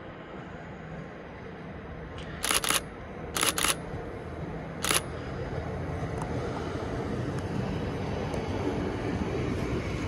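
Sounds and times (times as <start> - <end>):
diesel train running: 0.0 - 10.0
sharp clicks: 2.2 - 3.8, 4.8 - 5.0.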